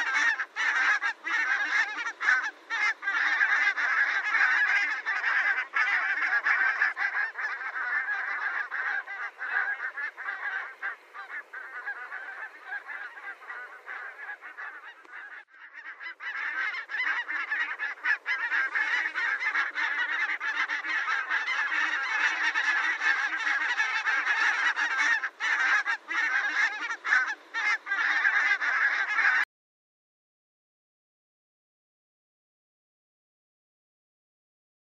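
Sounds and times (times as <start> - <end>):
geese honking: 0.0 - 29.5.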